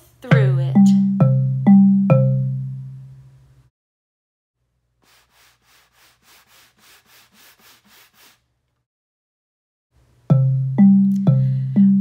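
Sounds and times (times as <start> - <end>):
xylophone-like mallet note: 0.3 - 3.1, 10.3 - 12.0
soft rubbing swish: 5.0 - 8.5.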